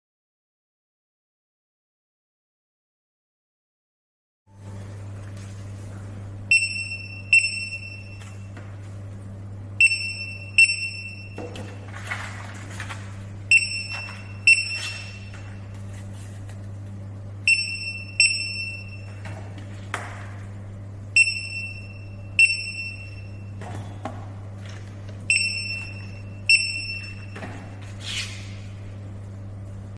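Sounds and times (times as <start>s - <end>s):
steady low hum: 4.5s - 29.9s
barcode scanner beeping: 6.5s - 8.5s, 9.8s - 11.6s, 13.5s - 15.7s, 17.4s - 19.2s, 21.2s - 23.6s, 25.2s - 27.8s.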